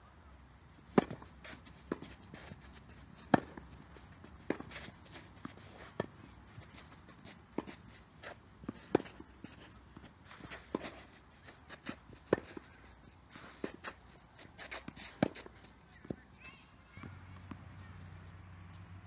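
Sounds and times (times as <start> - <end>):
racket hitting tennis ball: 0.8 - 16.4
shoe scuffs on clay: 0.9 - 18.8.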